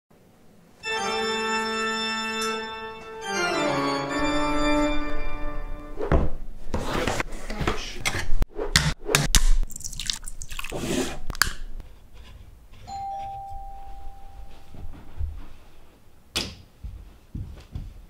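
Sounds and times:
spooky organ chord sliding down: 0.8 - 5.9.

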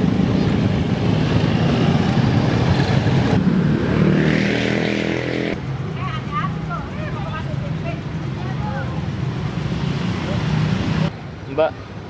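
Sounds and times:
motorcycles riding past: 0.0 - 11.1
scooter idling: 5.6 - 9.7.

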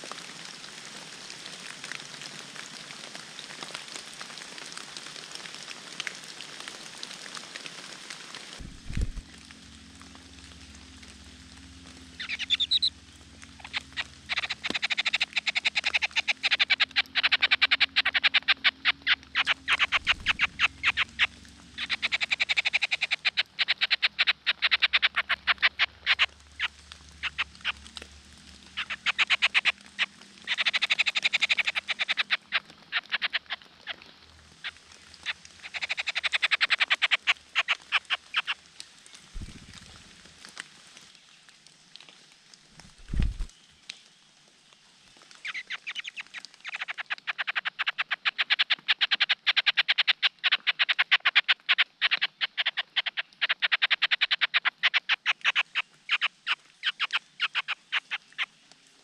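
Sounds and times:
animal calls of rapid rattling pulses: 8.6 - 27.9, 28.6 - 33.6, 34.6 - 38.6.

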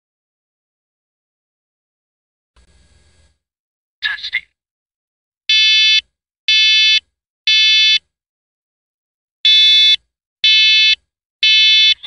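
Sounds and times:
smoke alarm beeping: 5.5 - 8.0, 9.5 - 12.0.

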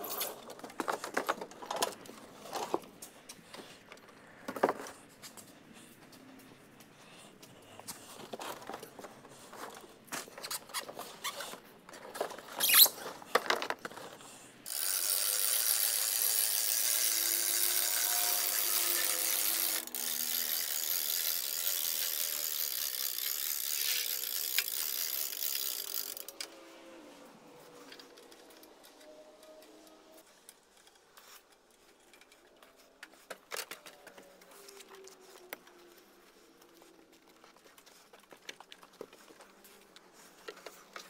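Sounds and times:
winch ratcheting: 14.7 - 26.5.

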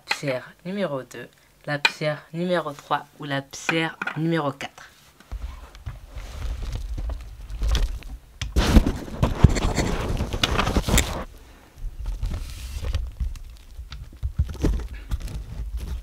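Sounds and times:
rustling and handling noise: 4.8 - 16.0.

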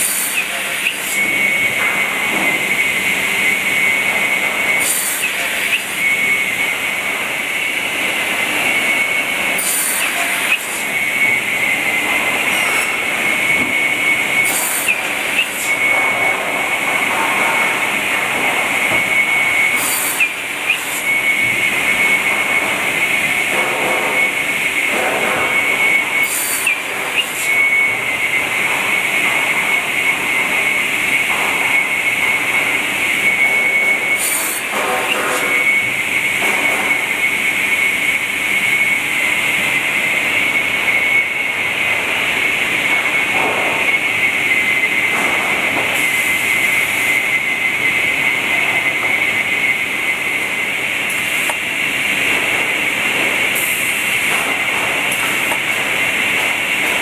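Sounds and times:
saw whining: 0.0 - 41.5.

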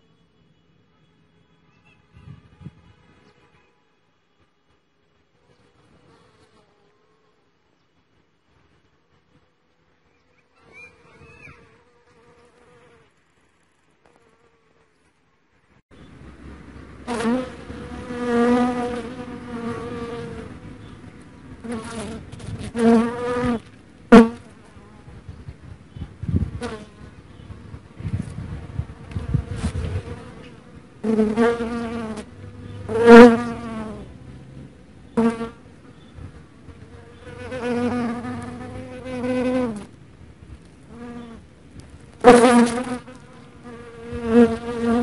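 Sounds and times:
bee buzzing in flight: 17.0 - 20.8, 21.6 - 25.3, 26.2 - 35.6, 36.8 - 39.9, 42.2 - 45.0.

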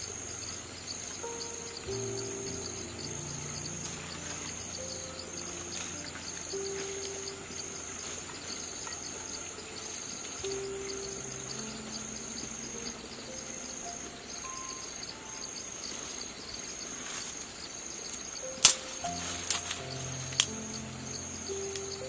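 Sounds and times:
faint background music: 0.0 - 22.0
high-pitched insect trilling: 0.0 - 22.0
sharp click: 18.6 - 20.6.

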